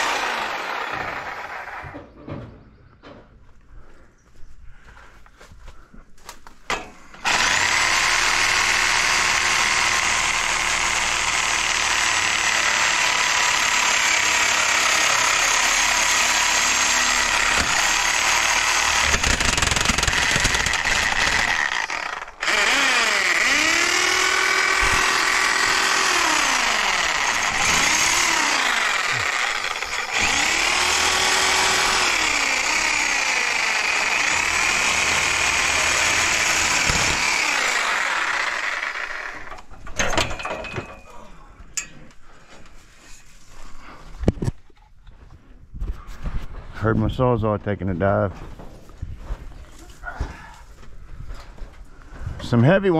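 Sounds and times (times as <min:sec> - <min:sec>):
reciprocating saw cutting metal: 0:00.0 - 0:02.0, 0:07.2 - 0:39.7.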